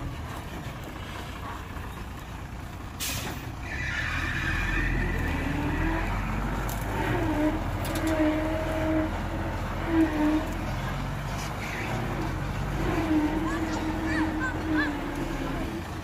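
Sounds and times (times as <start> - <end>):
diesel truck engine running: 0.0 - 16.0
air brakes hissing: 3.0 - 3.5
high squeal: 3.6 - 6.4.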